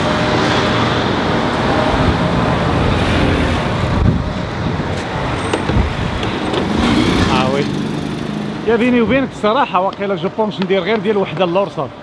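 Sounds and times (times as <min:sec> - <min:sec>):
road traffic: 0:00.0 - 0:12.0
wind buffeting microphone: 0:01.6 - 0:09.4.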